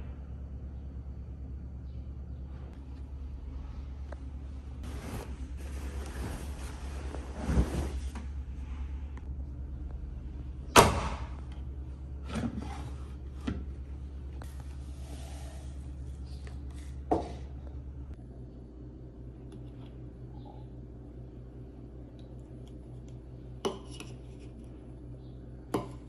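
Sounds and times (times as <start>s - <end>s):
steady low hum: 0.0s - 26.0s
clothes rustling: 4.8s - 9.2s
washing machine door thud: 10.7s - 11.4s.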